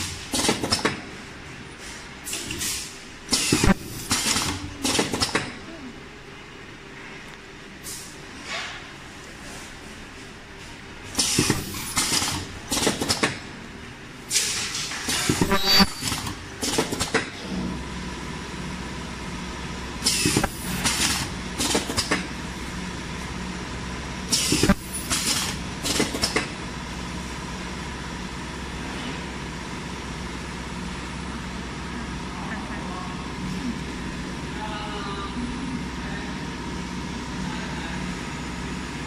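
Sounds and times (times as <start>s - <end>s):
machine hum: 15.0s - 39.0s.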